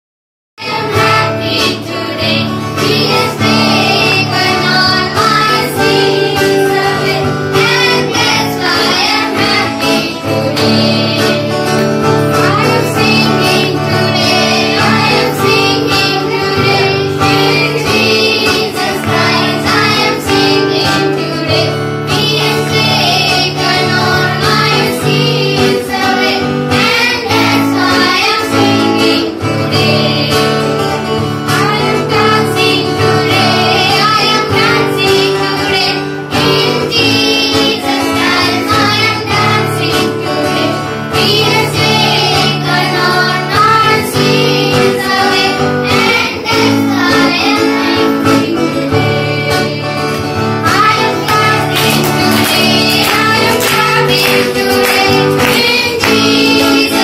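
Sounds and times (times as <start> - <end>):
children singing together: 0.6 - 57.0
strummed acoustic guitar: 0.6 - 57.0.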